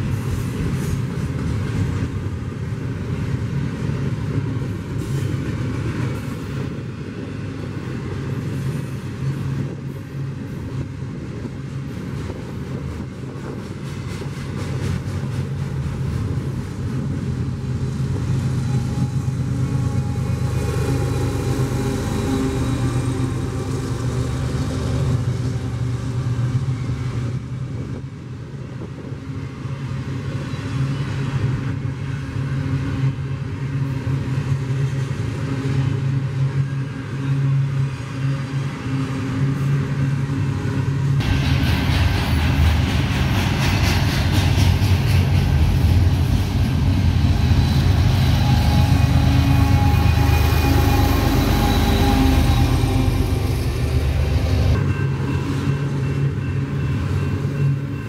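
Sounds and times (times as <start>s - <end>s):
rushing noise: 41.2s - 56.6s
large engine humming: 41.2s - 57.8s.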